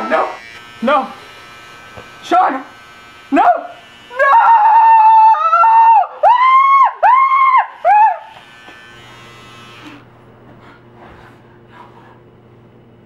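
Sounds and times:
electric trimmer buzzing: 0.0 - 5.8, 7.2 - 10.4
man wailing cries: 4.1 - 8.3.

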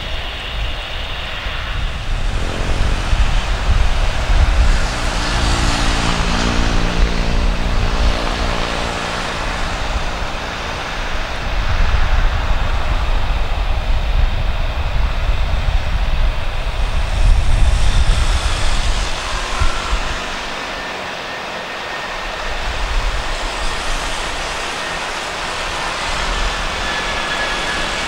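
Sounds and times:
jet engine roar: 0.0 - 28.0
low rumble: 1.0 - 20.8.

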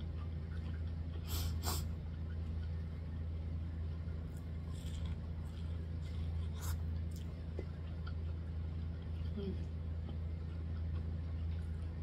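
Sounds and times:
low hum: 0.0 - 12.0
sniffs through the nose: 1.2 - 1.9.

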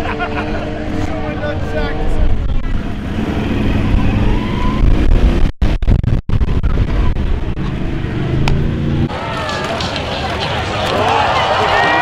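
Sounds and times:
off-road vehicle engine running: 0.0 - 11.4.

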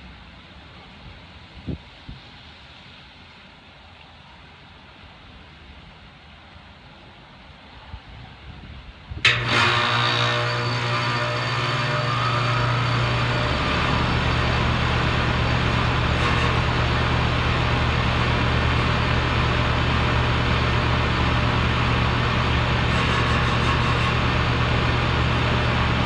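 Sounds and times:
compressor motor hum: 9.2 - 26.0.

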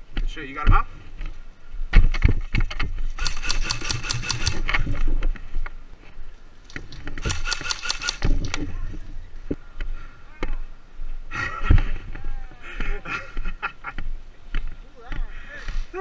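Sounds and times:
airsoft rifle full-auto bursts: 3.2 - 4.7, 7.2 - 8.3.

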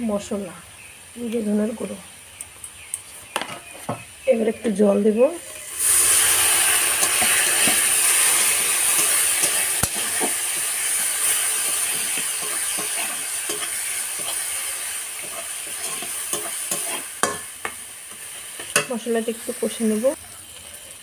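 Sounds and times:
spice paste sizzling in a wok: 0.1 - 21.0
spatula scraping and tapping a pan: 7.0 - 14.6, 15.2 - 19.0.

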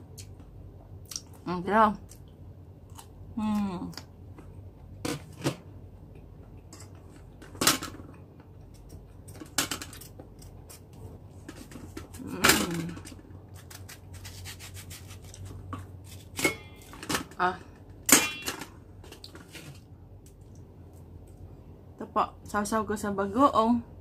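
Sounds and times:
knife scraping fruit skin: 13.5 - 16.9.

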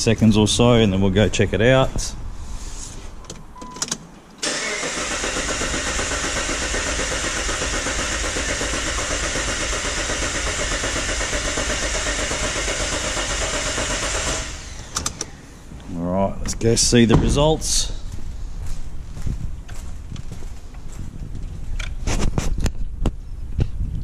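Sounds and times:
starter motor cranking engine: 4.4 - 15.4.

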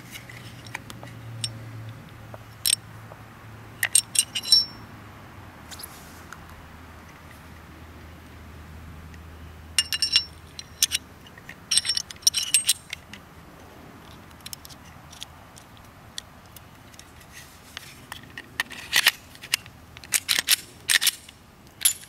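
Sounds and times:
pistol parts clicking: 3.8 - 4.8, 9.8 - 13.2, 18.1 - 22.0.

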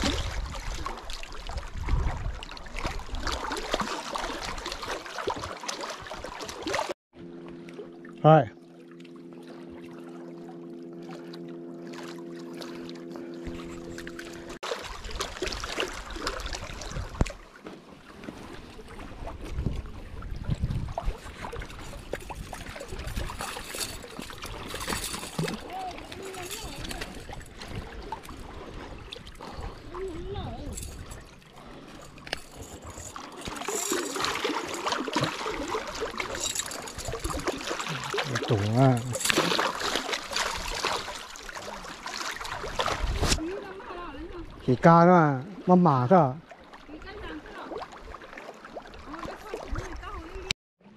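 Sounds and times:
water sloshing: 0.0 - 50.5.

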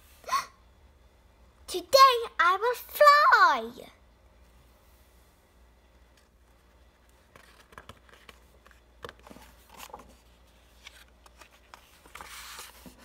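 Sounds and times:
book page turning: 6.6 - 13.0.

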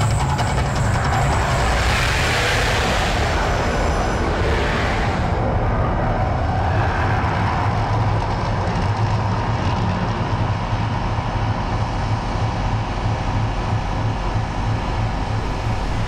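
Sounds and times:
fire jets rushing: 0.0 - 8.6
low rumble: 0.0 - 16.0.

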